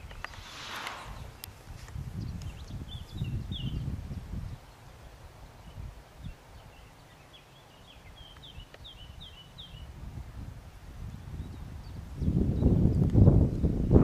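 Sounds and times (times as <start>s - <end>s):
wind rumble on microphone: 0.0s - 7.3s, 7.9s - 14.0s
songbird chirping: 0.0s - 9.9s.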